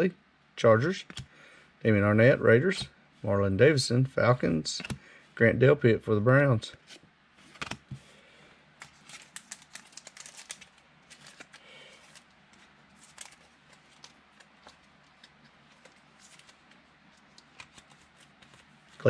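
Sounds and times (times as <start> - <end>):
trading cards handled on a table: 4.8 - 5.0, 6.8 - 8.1, 8.8 - 19.0.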